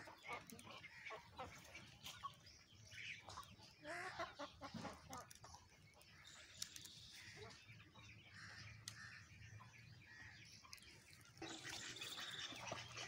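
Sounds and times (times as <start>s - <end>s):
chickens clucking: 0.0s - 13.0s.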